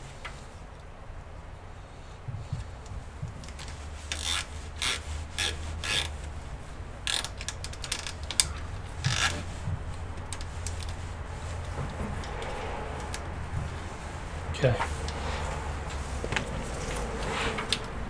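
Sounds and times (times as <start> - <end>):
cables scraping metal case: 7.1 - 18.0.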